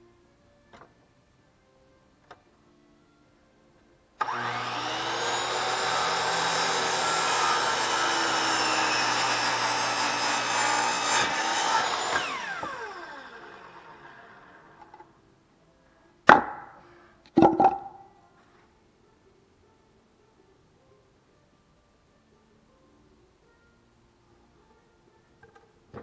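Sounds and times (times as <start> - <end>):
saw blade whine winding down: 4.2 - 14.8
miter saw cutting board: 4.2 - 14.9.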